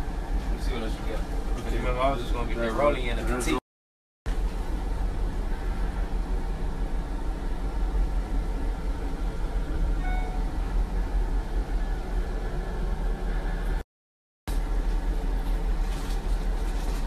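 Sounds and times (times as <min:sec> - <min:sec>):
van cabin road rumble: 0:00.0 - 0:03.6, 0:04.3 - 0:13.8, 0:14.5 - 0:17.0
faint electronic tone: 0:10.0 - 0:10.6.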